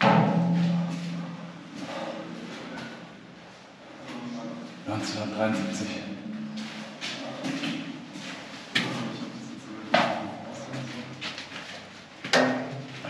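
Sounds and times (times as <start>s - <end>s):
sharp knocks: 0.0s - 1.4s, 12.3s - 12.9s.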